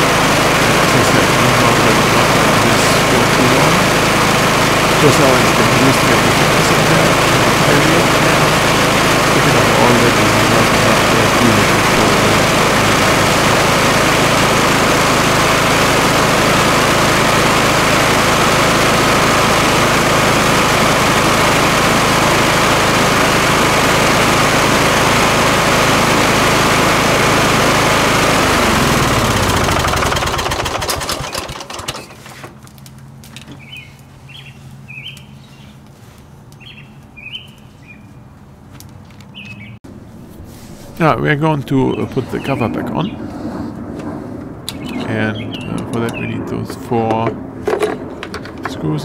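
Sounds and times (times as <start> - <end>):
lawn tractor engine running: 0.0 - 36.8
bird chirps: 33.5 - 35.8, 36.6 - 38.2, 39.3 - 39.8, 44.7 - 46.4.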